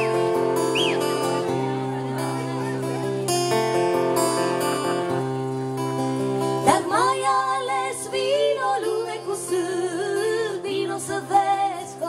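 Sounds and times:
acoustic guitar chords: 0:00.0 - 0:12.0
woman singing: 0:06.6 - 0:12.0.

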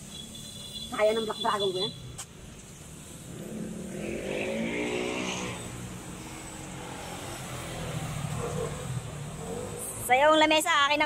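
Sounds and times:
motor vehicle driving past: 0:03.1 - 0:10.1.

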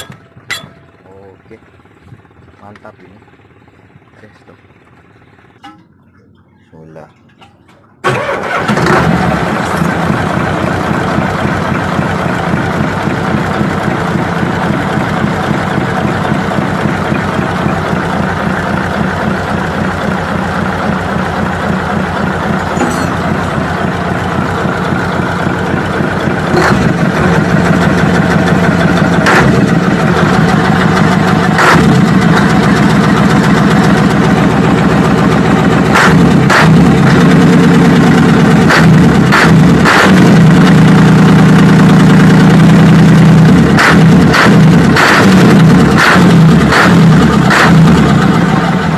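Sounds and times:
diesel engine idling: 0:00.0 - 0:48.9
engine starting: 0:07.6 - 0:09.9.

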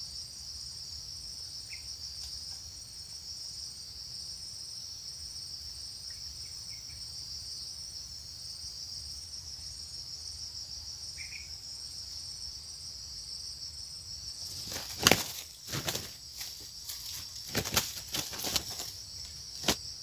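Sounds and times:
insect chorus droning: 0:00.0 - 0:20.0
wing flapping bursts: 0:14.4 - 0:19.8.

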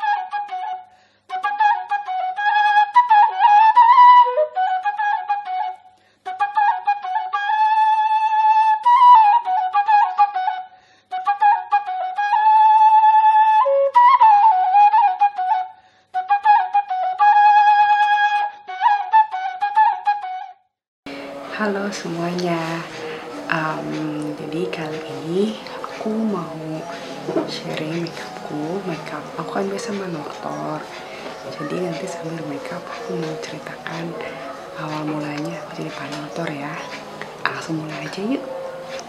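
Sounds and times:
solo wind instrument melody: 0:00.0 - 0:39.0.

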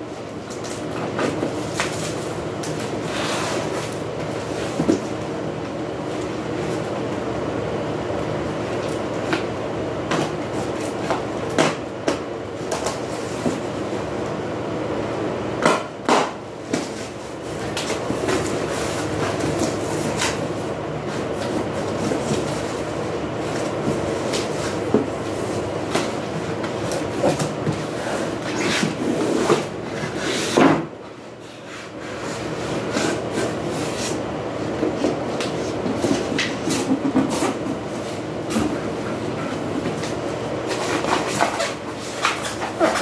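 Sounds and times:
steady mechanical hum: 0:00.0 - 0:43.0.

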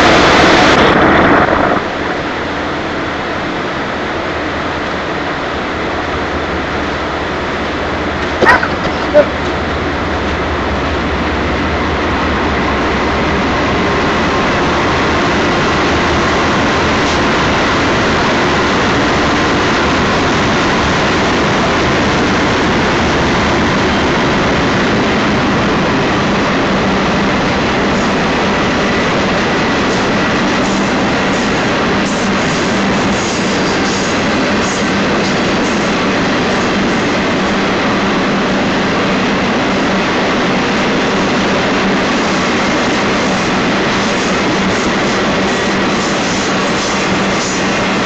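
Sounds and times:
train wheels on rails: 0:00.0 - 0:48.0.

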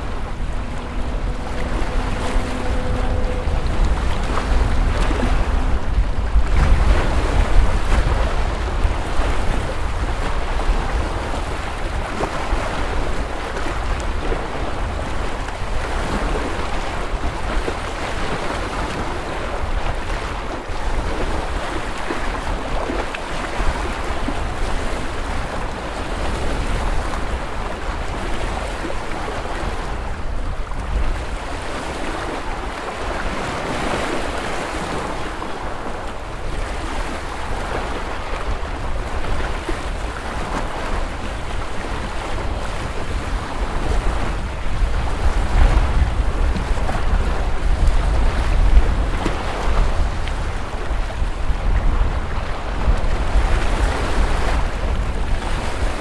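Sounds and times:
small waves washing ashore: 0:00.0 - 0:56.0
wind rumble on microphone: 0:00.0 - 0:56.0.

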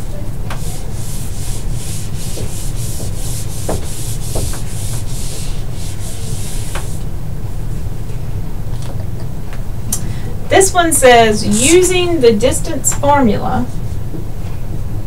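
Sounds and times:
eraser rubbing on whiteboard: 0:00.5 - 0:07.0.

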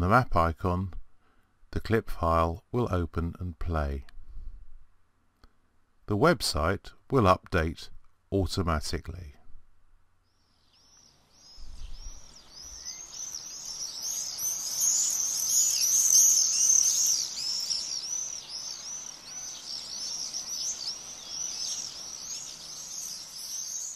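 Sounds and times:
swifts calling: 0:10.4 - 0:23.9.

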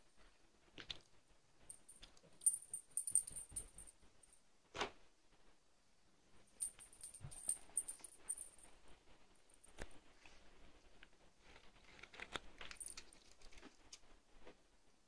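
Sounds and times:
small bell jingling: 0:01.7 - 0:04.0, 0:06.6 - 0:08.7, 0:12.8 - 0:13.1.

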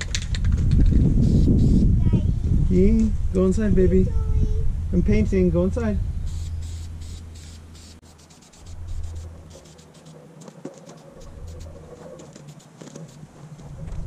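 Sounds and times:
low rumble: 0:00.6 - 0:07.9, 0:08.6 - 0:09.6
spray-paint can hissing: 0:01.2 - 0:01.8, 0:06.3 - 0:13.2.

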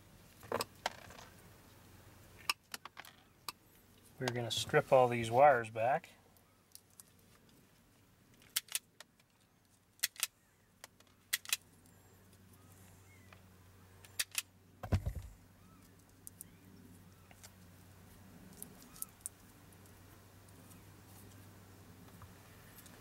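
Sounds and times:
dull thump: 0:14.8 - 0:15.3.

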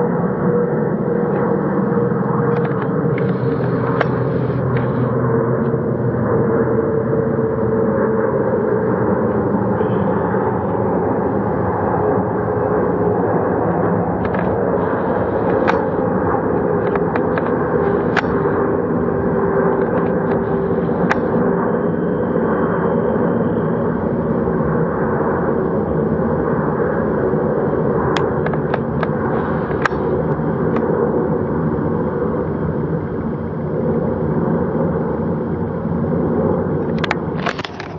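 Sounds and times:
jet engine roar: 0:00.0 - 0:37.9
sharp cracks: 0:14.2 - 0:16.0, 0:16.7 - 0:18.6.

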